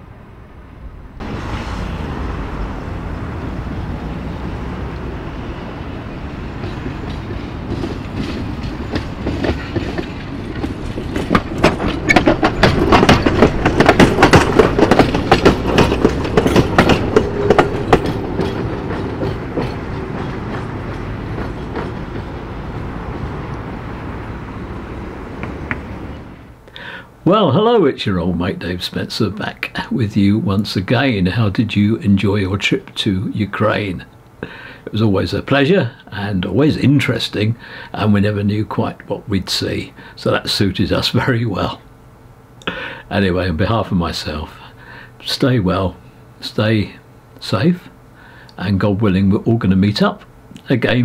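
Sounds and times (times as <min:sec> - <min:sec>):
tram rumbling: 0:00.0 - 0:48.0, 0:48.6 - 0:51.0
wheels clacking over rail joints: 0:01.2 - 0:26.6.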